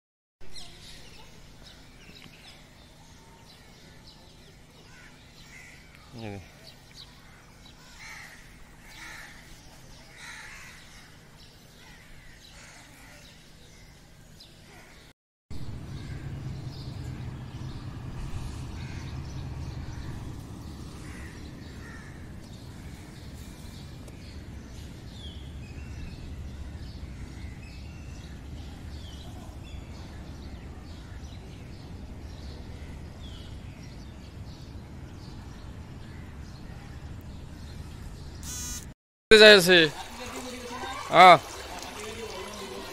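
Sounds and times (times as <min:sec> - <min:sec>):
low background rumble: 0:15.5 - 0:38.3
birds chirping and calling: 0:15.7 - 0:30.2.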